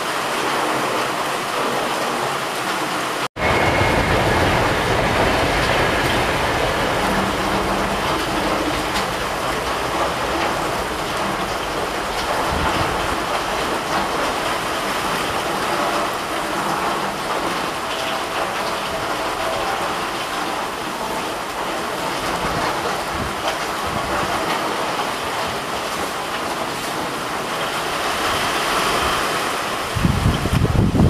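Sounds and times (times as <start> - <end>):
rain falling into puddles: 0.0 - 31.0.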